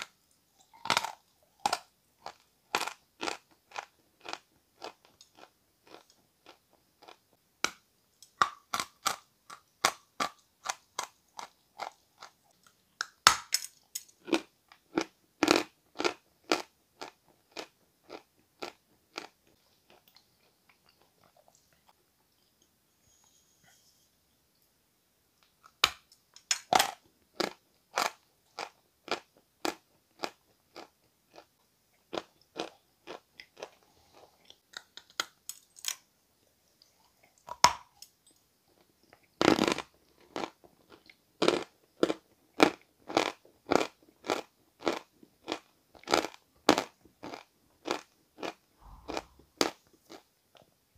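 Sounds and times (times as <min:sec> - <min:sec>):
chalk crunching when chewed: 0:39.5 - 0:50.2.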